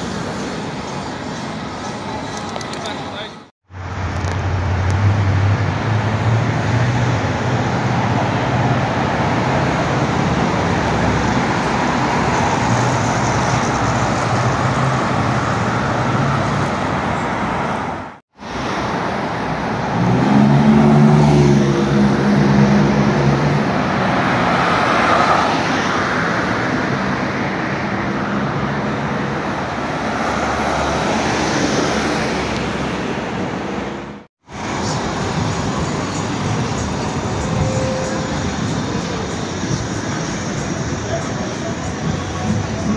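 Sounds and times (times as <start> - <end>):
cars running past: 0.0 - 42.9
loud engine passing: 19.8 - 25.0.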